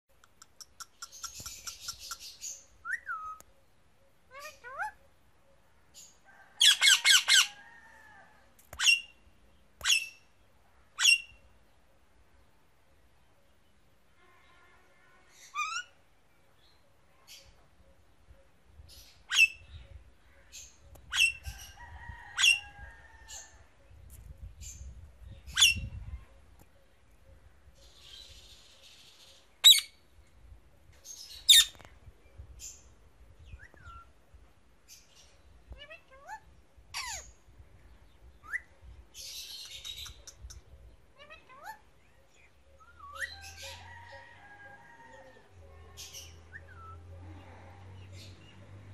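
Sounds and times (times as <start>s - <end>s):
parrot chirps: 0.3s - 3.4s, 29.6s - 30.0s.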